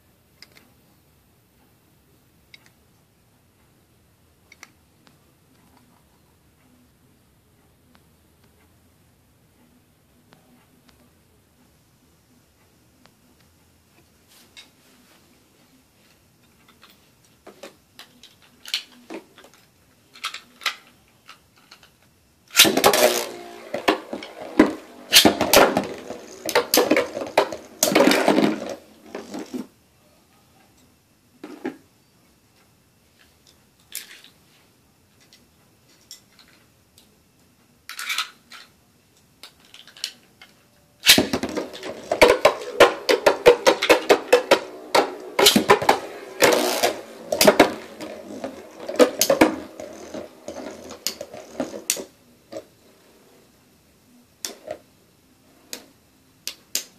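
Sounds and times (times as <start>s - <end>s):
spinning tops clattering in bowl: 41.1s - 52.1s.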